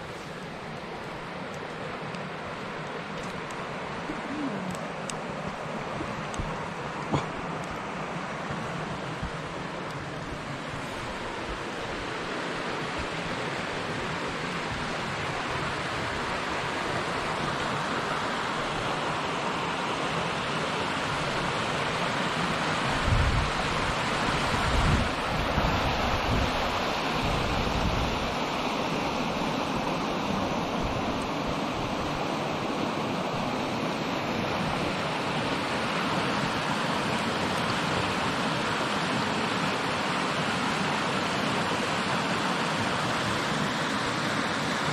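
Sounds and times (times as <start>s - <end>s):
river rushing over rocks: 0.0s - 44.9s
wind rumble on microphone: 22.9s - 28.4s.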